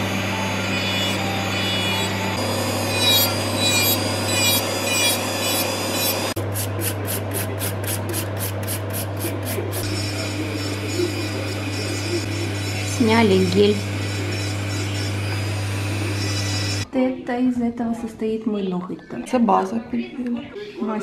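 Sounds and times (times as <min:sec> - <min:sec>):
electric nail drill humming: 0:00.0 - 0:06.7, 0:08.2 - 0:16.9
quick regular scratching: 0:02.9 - 0:12.9.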